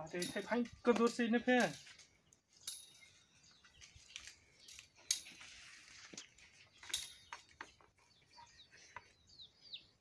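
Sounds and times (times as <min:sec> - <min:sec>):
metal tongs clicking and clinking: 0:00.1 - 0:01.9.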